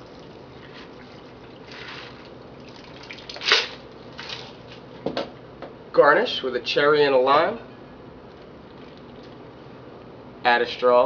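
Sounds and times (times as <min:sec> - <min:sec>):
liquid trickling into glass: 0:00.0 - 0:03.4, 0:08.6 - 0:09.4.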